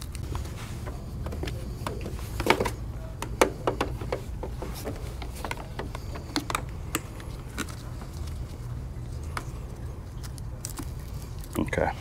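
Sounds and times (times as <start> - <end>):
cable and plastic wrapping rustling: 0.0 - 11.9
steady low hum: 0.0 - 12.0.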